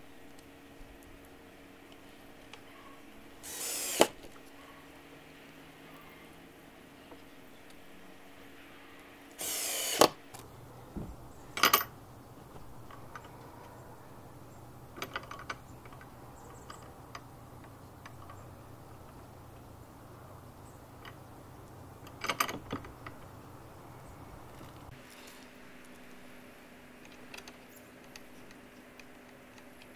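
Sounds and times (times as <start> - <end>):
cordless drill burst: 3.4 - 4.2, 9.4 - 10.2
metal latch clicks and rattles: 11.5 - 12.0, 15.0 - 18.4, 22.0 - 23.3.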